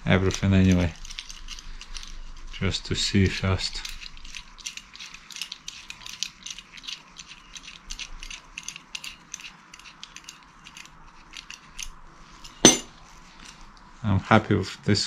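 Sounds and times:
metal bolt clicking and rattling: 12.6s - 12.9s.

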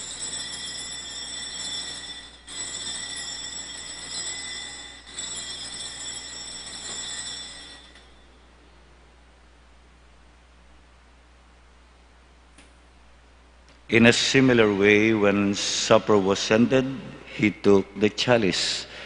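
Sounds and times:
altar bells ringing: 0.0s - 8.5s.

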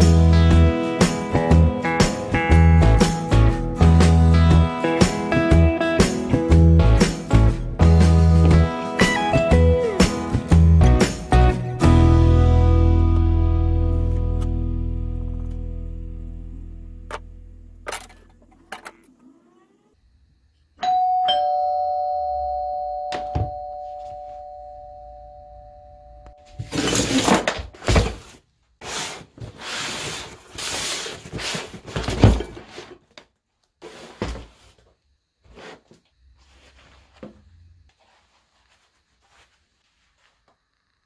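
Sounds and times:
two-tone doorbell chime: 20.8s - 26.7s
rustling handling noise: 33.8s - 40.7s.

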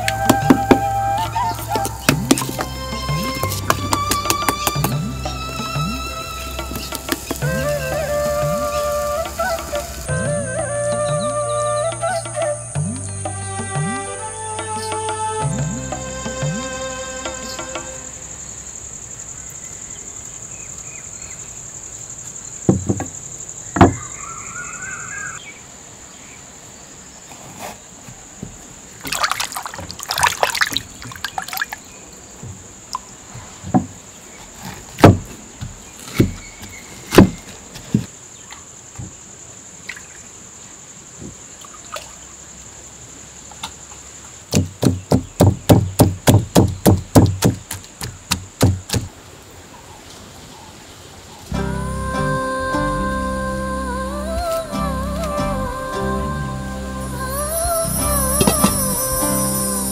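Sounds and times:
high insect drone: 0.0s - 27.3s, 51.5s - 59.9s
wooden pestle pounding in clay pot: 1.8s - 5.0s, 44.5s - 49.1s
liquid trickling: 6.3s - 10.1s, 29.0s - 31.9s.

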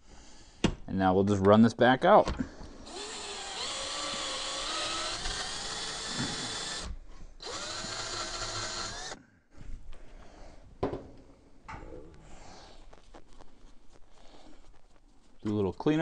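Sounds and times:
electric drill running: 2.8s - 9.2s.

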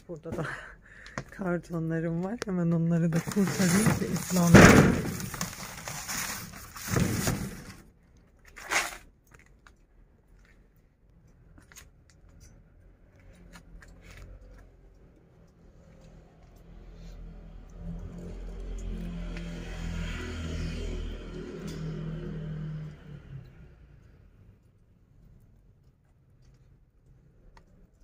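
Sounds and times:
cardboard boxes scraping: 3.2s - 7.8s.

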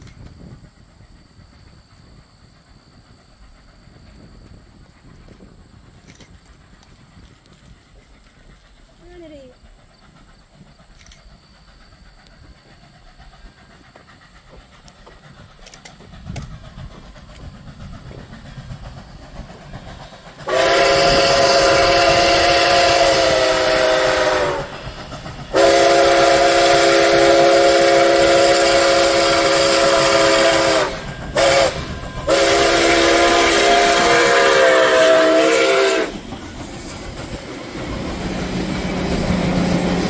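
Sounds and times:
steam locomotive rumbling: 0.0s - 40.0s
train chime whistle blasts: 20.5s - 24.8s, 25.5s - 36.2s.

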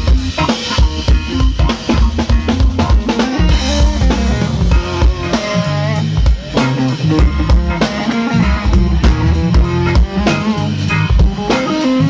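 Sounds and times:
drum kit: 0.0s - 12.0s
electric guitar melody: 0.0s - 12.0s.

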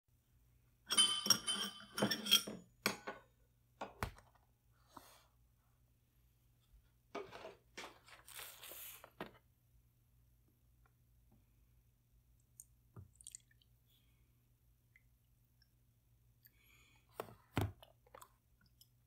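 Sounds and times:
ceramic bowl clinking: 0.9s - 3.1s.

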